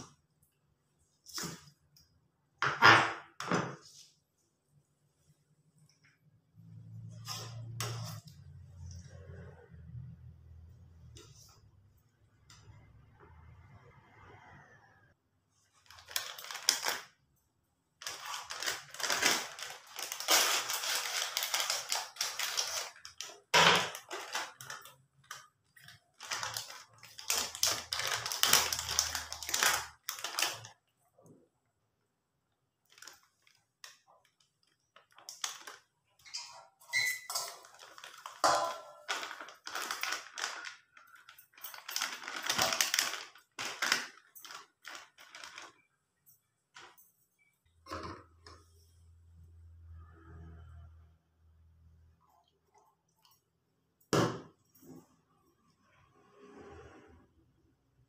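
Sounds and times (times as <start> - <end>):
plastic packet crinkling: 15.8 - 17.2, 18.0 - 30.8, 32.8 - 36.2, 37.3 - 45.9.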